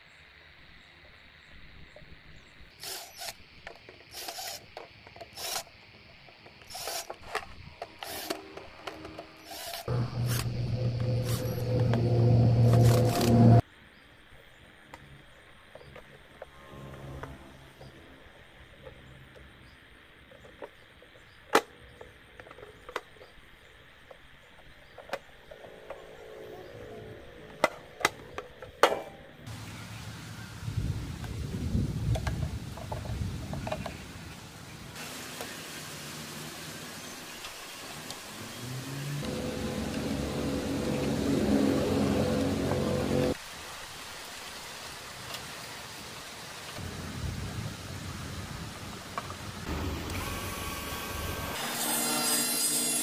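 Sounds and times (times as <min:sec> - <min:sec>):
screws and hinge scraping: 0:06.7 - 0:13.6.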